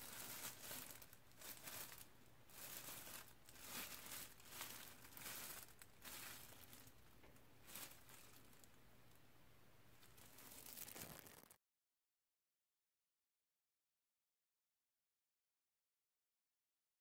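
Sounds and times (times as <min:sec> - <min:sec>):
plastic gloves crinkling: 0:00.0 - 0:08.8, 0:10.0 - 0:11.6.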